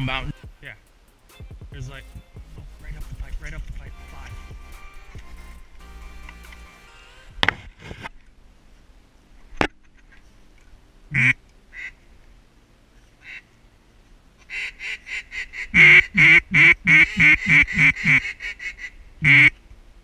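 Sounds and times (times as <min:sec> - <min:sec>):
duck call quacks: 0:11.1 - 0:12.0, 0:14.5 - 0:19.6.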